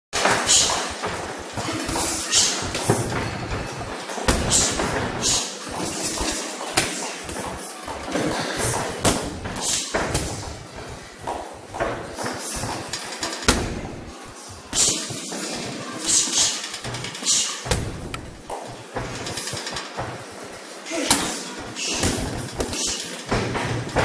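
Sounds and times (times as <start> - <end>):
gloved punches and kicks landing: 0.2 - 7.6, 8.6 - 14.1, 17.7 - 19.3, 21.9 - 24.0.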